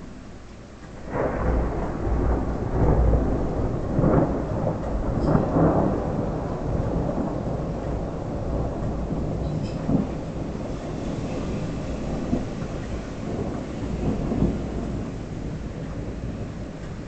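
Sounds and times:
thunder rumbling: 0.0s - 17.0s.

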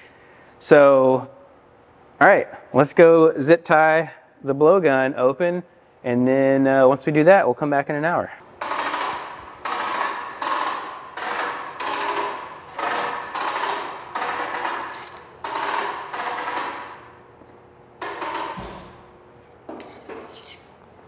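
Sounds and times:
hose reel spinning and rattling: 8.6s - 17.2s.

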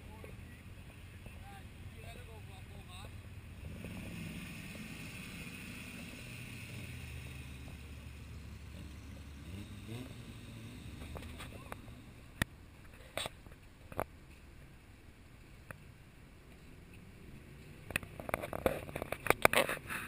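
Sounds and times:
off-road vehicle engine running: 0.0s - 14.4s.

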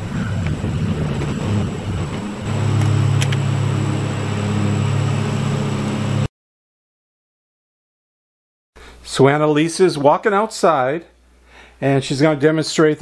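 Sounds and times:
vehicle engine humming: 0.0s - 6.3s.

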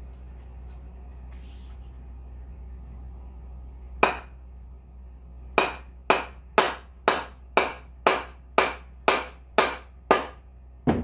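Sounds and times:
wooden mallet knocks: 5.6s - 11.0s.

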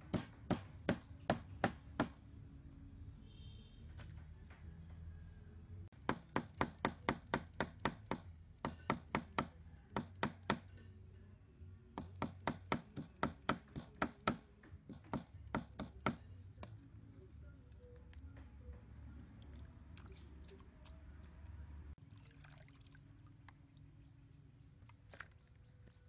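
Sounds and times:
cleaver chopping on wooden block: 0.0s - 2.2s, 6.0s - 10.7s, 12.0s - 16.2s.

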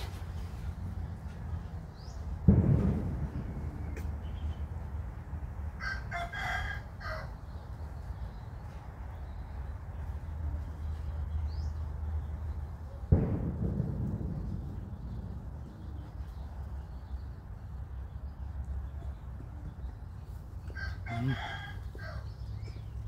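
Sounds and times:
sudden low thump: 2.4s - 4.5s, 13.1s - 16.2s
rooster crowing: 5.8s - 7.3s, 20.7s - 22.3s.

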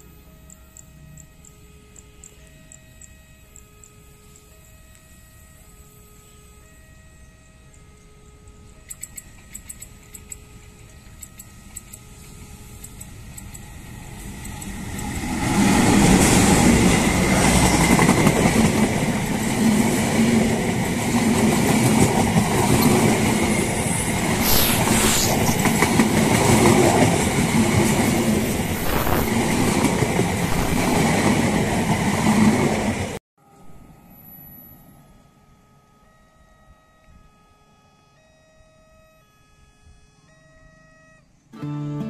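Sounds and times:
locomotive passing: 8.6s - 33.2s
high wheel squeal: 22.8s - 31.2s.

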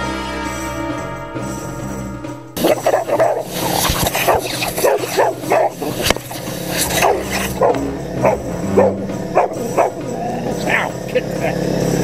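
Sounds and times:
air compressor hiss: 2.6s - 10.2s
dogs barking and yipping: 2.6s - 12.0s.

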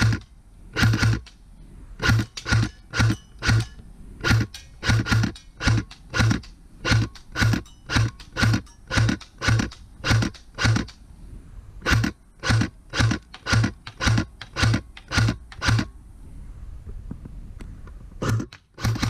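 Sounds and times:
airsoft rifle firing single shots: 0.8s - 1.4s, 2.0s - 11.0s, 11.8s - 15.9s, 18.2s - 19.0s.

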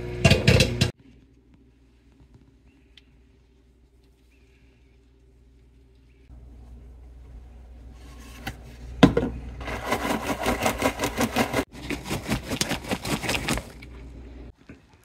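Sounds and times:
bag of popcorn shaken: 9.7s - 13.8s.

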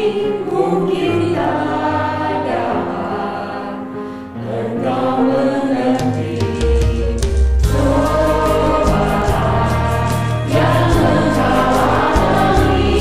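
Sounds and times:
choir singing a worship song: 0.0s - 13.0s
musical accompaniment: 0.0s - 13.0s
drum beat: 6.7s - 13.0s.

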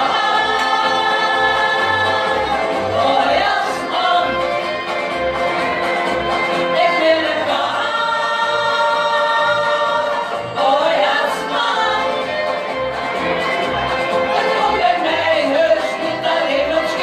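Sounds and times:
women singing together: 0.0s - 4.7s, 6.6s - 12.6s, 14.3s - 17.0s.

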